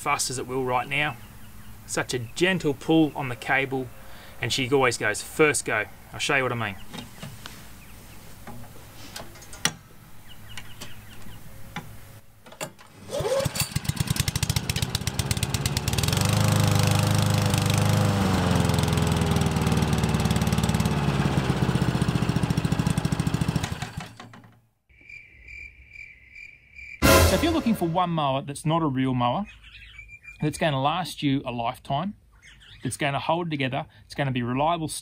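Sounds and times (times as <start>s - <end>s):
lawn mower engine running: 12.4s - 24.2s.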